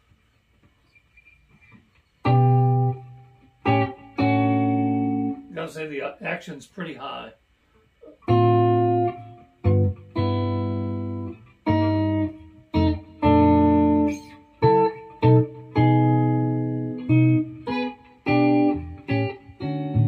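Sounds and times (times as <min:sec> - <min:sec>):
electric guitar chords: 0:01.6 - 0:05.6, 0:08.0 - 0:20.0.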